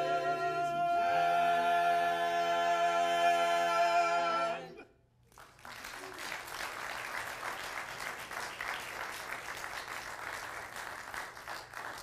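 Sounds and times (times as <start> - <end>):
crowd applauding: 5.2 - 12.0.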